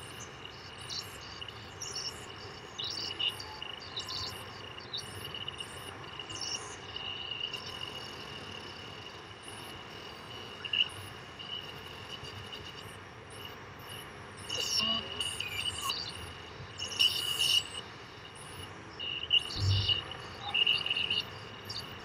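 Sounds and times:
irregular electronic chirps: 7.4s - 22.0s
electronic blip: 19.6s - 20.0s
steady high electronic tone: 19.6s - 20.0s.

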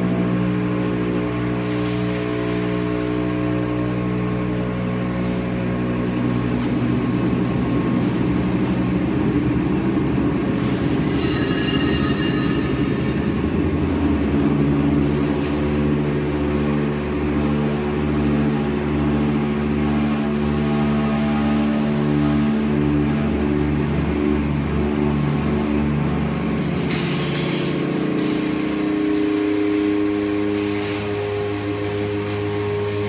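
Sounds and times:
hydraulic motor and pump hum: 0.0s - 33.0s
rough rattling noise: 6.2s - 23.1s
brief high whine: 10.5s - 15.6s.

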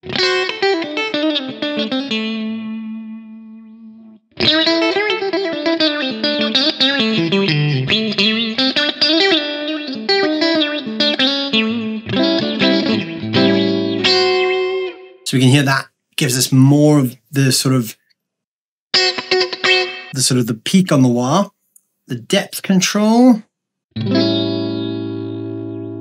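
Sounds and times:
electric guitar with auto-wah: 0.0s - 15.2s, 19.0s - 20.2s, 24.0s - 26.0s.

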